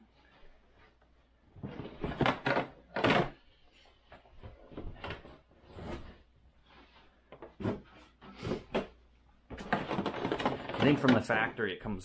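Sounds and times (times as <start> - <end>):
cardboard packaging rustling: 9.5 - 11.3.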